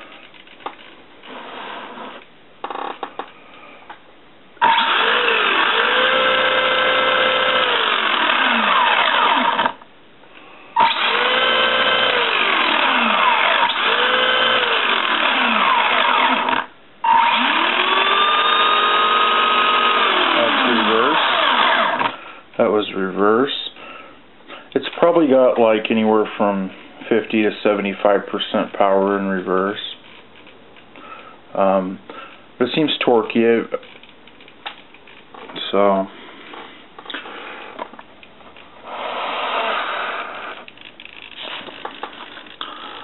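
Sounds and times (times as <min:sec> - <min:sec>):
toy car electric motor whining: 0:04.6 - 0:09.8, 0:10.8 - 0:22.2, 0:38.8 - 0:43.0.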